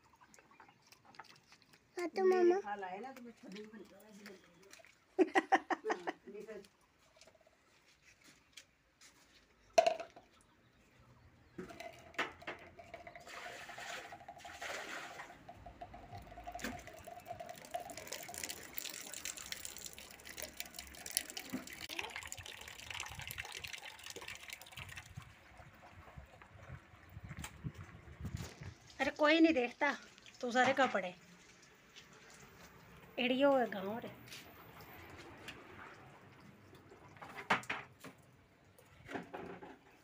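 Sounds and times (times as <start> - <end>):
water splashing onto concrete: 0.0 - 6.8, 12.2 - 25.3, 28.4 - 33.0.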